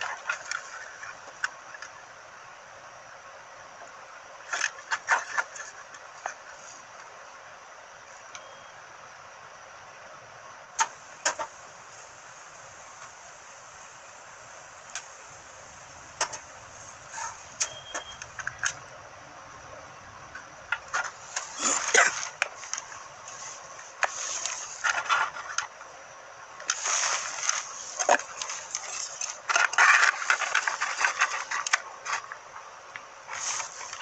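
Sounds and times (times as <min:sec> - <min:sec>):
scratchy rubbing and rustling: 0:15.8 - 0:18.8, 0:20.8 - 0:25.8, 0:26.7 - 0:32.4, 0:33.3 - 0:34.0.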